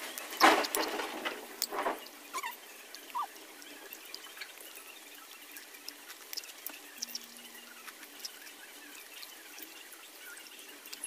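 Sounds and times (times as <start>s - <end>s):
wet chewing mouth clicks: 2.4s - 9.8s.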